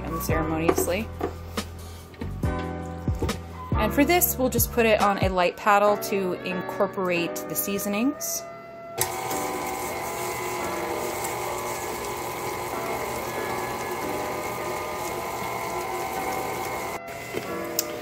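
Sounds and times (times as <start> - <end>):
stand mixer motor whine: 9.0 - 17.9.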